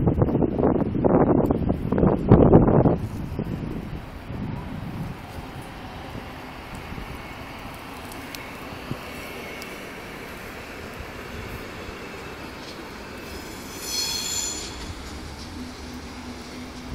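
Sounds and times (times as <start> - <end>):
electric train running on rails: 0.0 - 16.9
high-pitched wheel squeal: 11.6 - 16.0.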